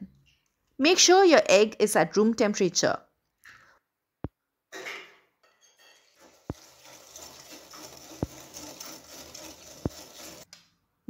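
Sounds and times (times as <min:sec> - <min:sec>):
whisk clinking against glass: 0:05.5 - 0:10.5
whisk swishing in a bowl: 0:06.1 - 0:10.5.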